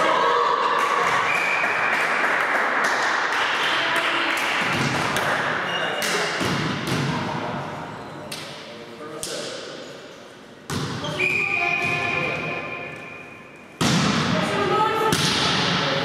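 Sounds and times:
volleyball being struck: 13.8s - 14.4s, 15.1s - 15.8s.

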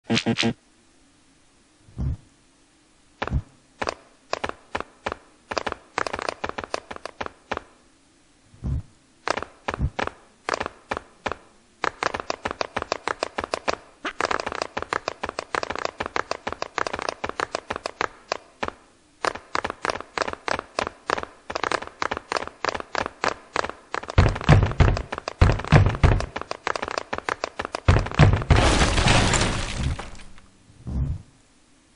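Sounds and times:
dancing feet tapping: 9.3s - 28.6s
heavy low stomps: 27.9s - 31.3s.

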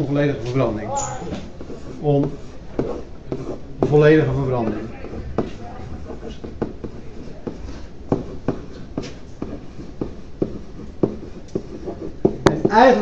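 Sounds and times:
steady low hum: 0.0s - 13.0s
stylus tapping on pen tablet: 4.6s - 12.8s.

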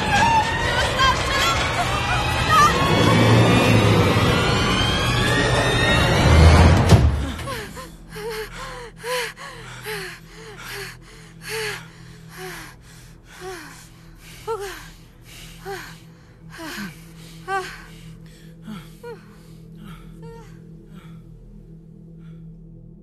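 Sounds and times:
low steady hum: 0.0s - 23.0s
woman gasping with whimpers: 13.4s - 21.2s.

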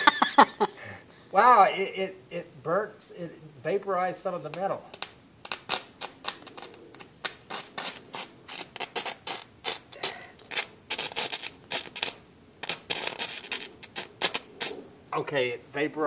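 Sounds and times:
electrical arcing crackle: 4.5s - 14.8s.

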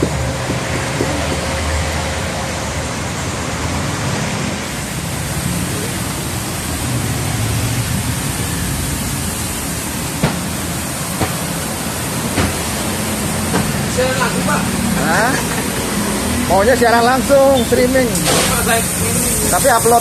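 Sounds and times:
high-pressure spray hissing: 4.8s - 20.0s.

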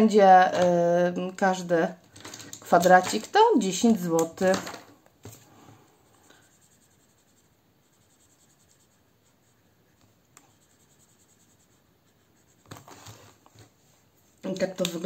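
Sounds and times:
marker scratching on paper: 6.2s - 13.5s.

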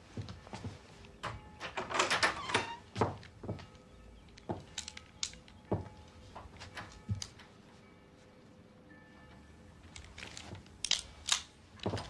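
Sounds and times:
door lock and latch rattling: 1.2s - 2.8s
footsteps on wooden boards: 2.9s - 3.7s, 4.5s - 4.8s, 5.7s - 7.2s.

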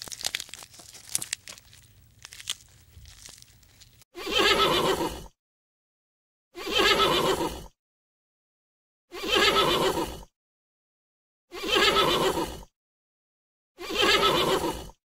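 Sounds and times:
animal crying: 4.2s - 5.2s, 6.6s - 7.6s, 9.1s - 10.2s, 11.5s - 12.6s, 13.8s - 14.8s.

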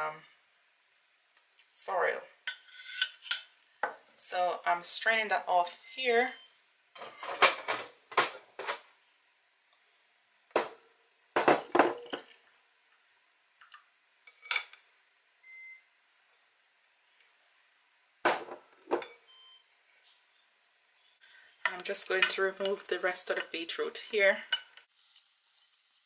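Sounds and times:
metal and glass cookware clinking: 11.4s - 12.3s, 21.6s - 22.9s.

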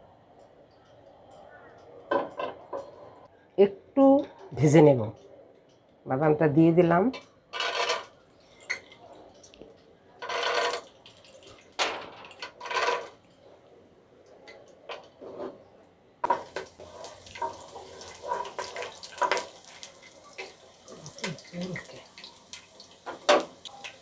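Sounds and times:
peanuts sizzling in hot oil: 16.2s - 24.0s.

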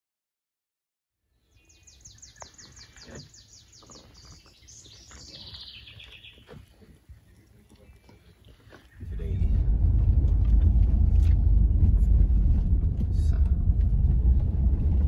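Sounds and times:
songbird singing: 1.2s - 12.3s
low rumble: 9.0s - 15.0s.

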